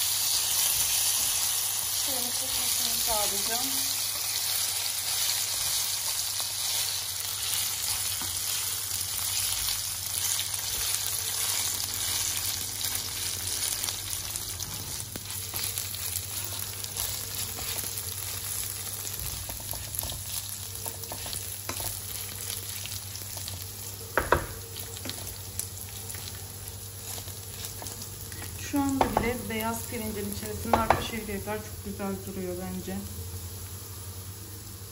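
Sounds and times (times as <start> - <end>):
rice sizzling in oil: 0.0 - 34.9
wooden spatula scraping pot: 14.6 - 22.4.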